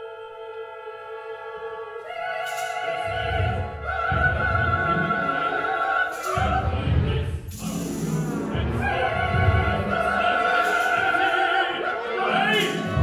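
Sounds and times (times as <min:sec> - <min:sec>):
woman singing opera: 0:00.0 - 0:07.4, 0:08.6 - 0:13.0
orchestra playing: 0:01.4 - 0:13.0.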